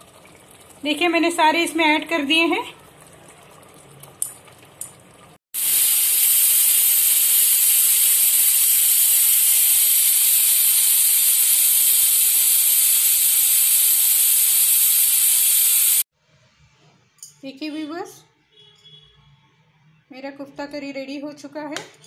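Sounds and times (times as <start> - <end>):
pressure cooker steam hissing: 5.6 - 16.1.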